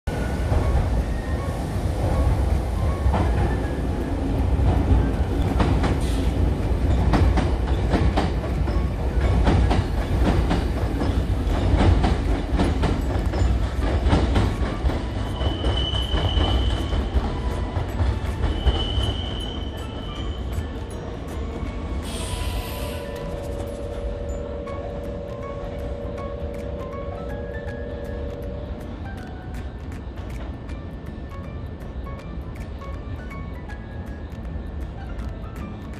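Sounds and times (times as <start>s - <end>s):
electric train rumbling: 0.1s - 35.9s
wheel clacks over rail joints: 4.6s - 20.8s
high wheel squeal: 15.2s - 20.7s, 21.7s - 24.5s.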